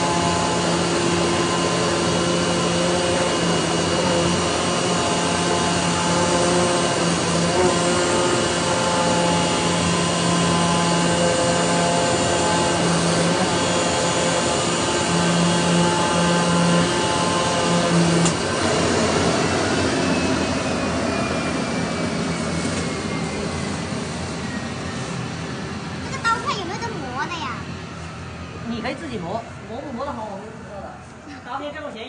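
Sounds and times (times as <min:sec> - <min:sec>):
cutting head hum: 0:00.0 - 0:20.3
vacuum blower drone: 0:00.0 - 0:32.0.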